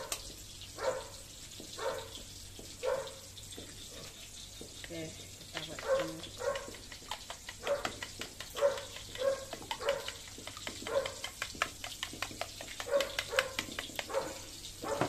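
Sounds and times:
dog barking: 0.8s - 1.2s, 1.8s - 2.2s, 2.8s - 3.3s, 5.8s - 6.8s, 7.6s - 8.0s, 8.6s - 10.2s, 10.8s - 11.3s, 12.8s - 15.0s
spoon beating eggs in bowl: 1.0s - 15.0s.

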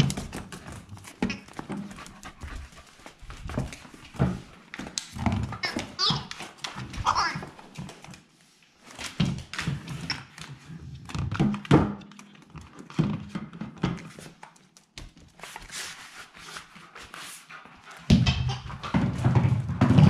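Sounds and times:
ball and paws thumping on wooden floor: 0.0s - 8.2s, 17.9s - 20.0s.

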